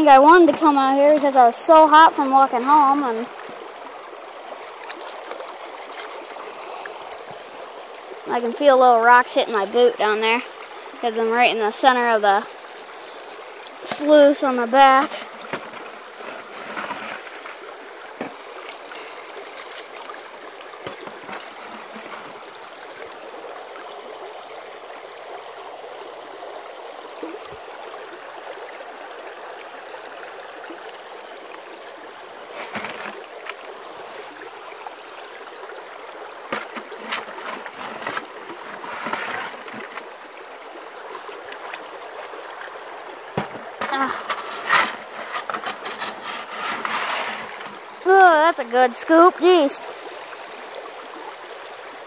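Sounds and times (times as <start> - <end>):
water rushing through sluice box: 0.0 - 52.0
short knocks and splashes: 13.7 - 22.5, 32.5 - 34.4, 36.4 - 40.2, 41.2 - 47.9.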